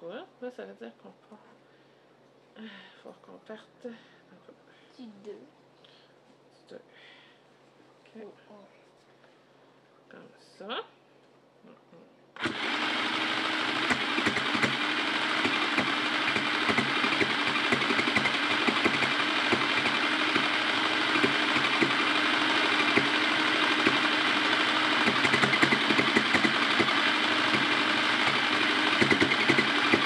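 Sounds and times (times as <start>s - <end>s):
sewing machine running: 12.4s - 30.0s.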